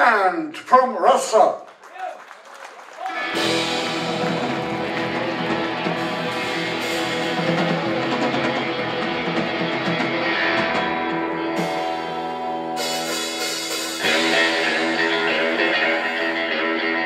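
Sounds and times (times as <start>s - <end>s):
instrumental guitar rock band: 3.1s - 17.0s.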